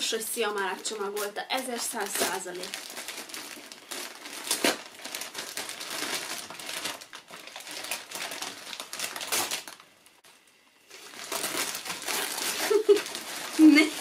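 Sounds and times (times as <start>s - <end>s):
wrapping paper tearing and crinkling: 0.0s - 14.0s.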